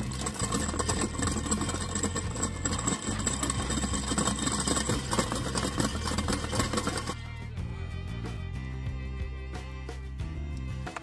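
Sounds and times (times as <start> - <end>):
engine running with rattle: 0.0 - 7.2.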